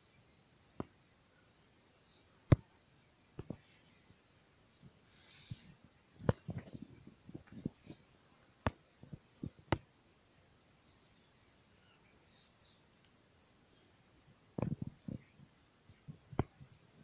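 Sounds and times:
faint steady hiss: 0.0 - 17.0.

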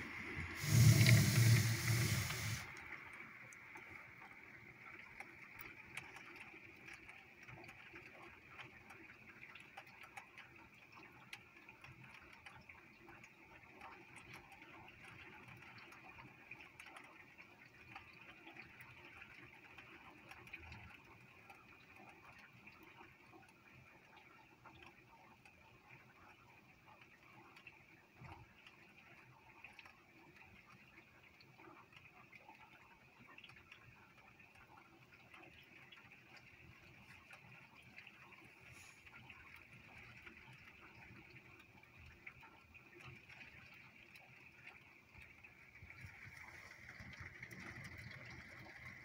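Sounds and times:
faint rain hiss: 0.0 - 6.2, 36.8 - 41.9.

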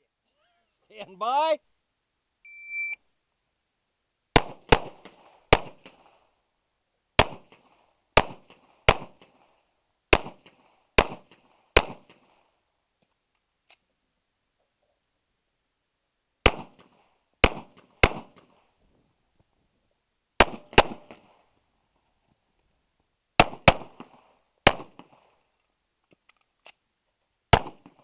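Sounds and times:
shot timer beep: 2.5 - 3.0
pistol shots: 4.4 - 6.1, 7.2 - 7.6, 8.2 - 9.3, 10.1 - 12.3, 16.4 - 18.5, 20.4 - 21.3, 23.4 - 25.2, 27.5 - 28.0.

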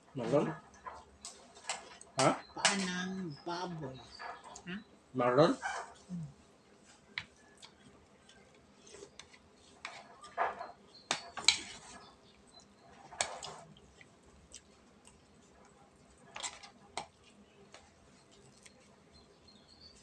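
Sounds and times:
cutlery clinking on plates: 9.8 - 12.0.

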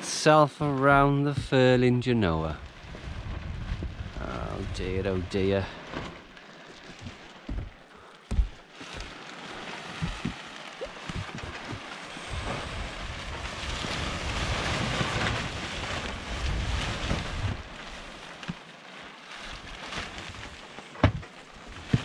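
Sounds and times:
sailcloth rustling and flapping: 0.3 - 22.0
wind buffeting microphone: 2.6 - 5.6, 10.0 - 17.8
dull thumps: 7.0 - 9.2, 21.0 - 22.0.

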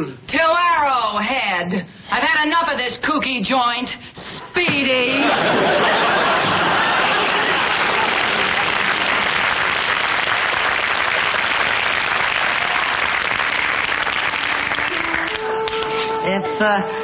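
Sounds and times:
studio audience applauding: 5.4 - 15.9.

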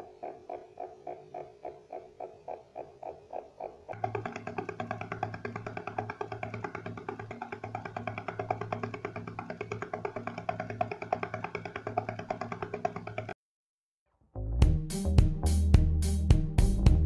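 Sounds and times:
music with percussive beat: 4.0 - 13.4, 14.6 - 17.0.

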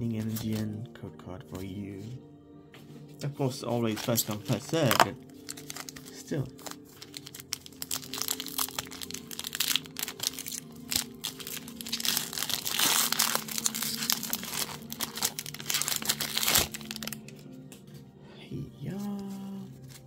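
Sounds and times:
foil wrapper crinkling and tearing: 3.9 - 17.4, 19.0 - 20.0.

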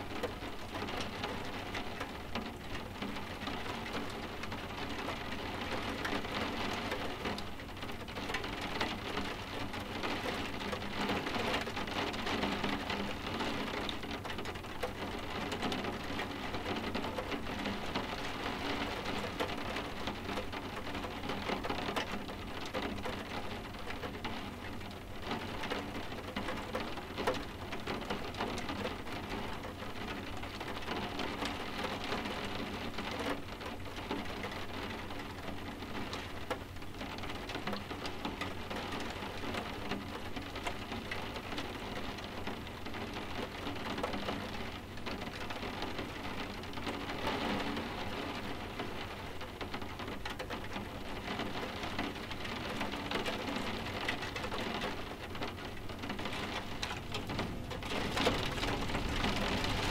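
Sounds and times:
rain tapping on window glass: 0.0 - 59.9.

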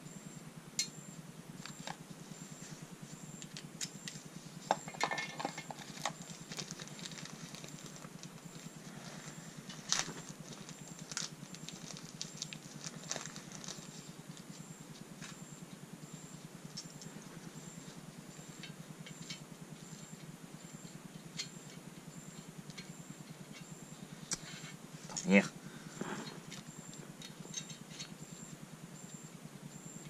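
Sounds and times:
steady low hum: 0.0 - 30.0
metal tools clicking and knocking: 4.7 - 6.2.

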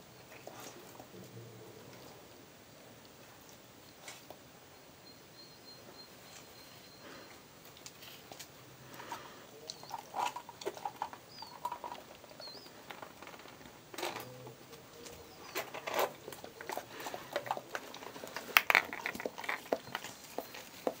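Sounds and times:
claws and teeth tapping eggshell: 16.3 - 21.0.

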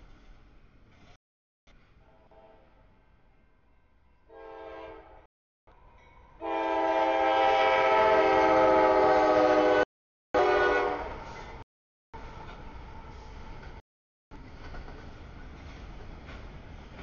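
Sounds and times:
locomotive air horn blasts: 2.0 - 2.8, 4.3 - 5.2, 6.4 - 11.4.

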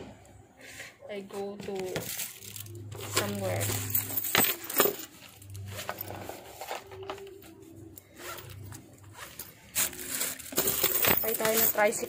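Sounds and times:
fabric bag rubbing: 8.1 - 10.8.

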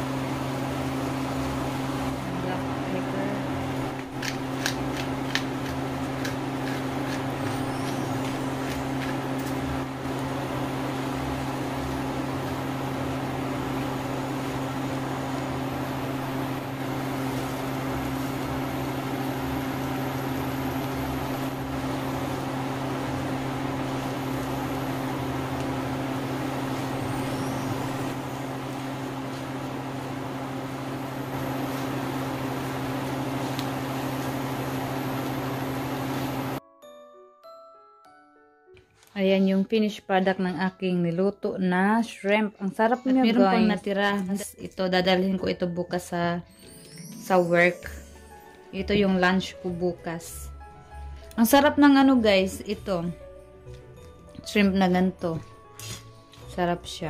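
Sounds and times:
cooktop electrical hum and fan: 0.0 - 36.6, 38.9 - 57.0
shrimp frying hiss: 3.6 - 36.6, 55.7 - 56.5.

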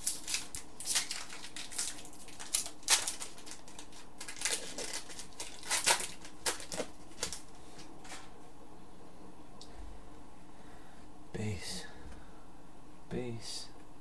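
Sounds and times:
trading cards rustling and slapping: 0.0 - 8.3.

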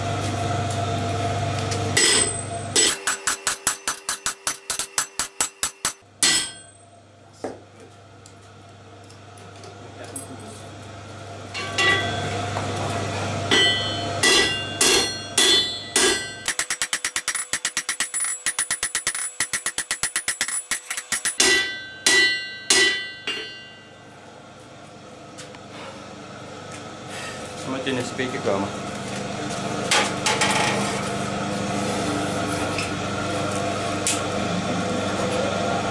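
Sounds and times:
anvil ringing: 2.0 - 6.9, 11.6 - 12.3, 13.5 - 24.0
hammer striking metal on anvil: 2.0 - 6.9, 11.6 - 12.3, 13.5 - 24.0.

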